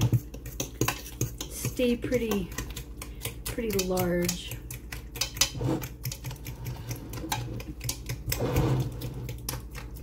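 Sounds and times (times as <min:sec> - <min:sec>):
utensil scraping metal pot: 0:05.2 - 0:09.5.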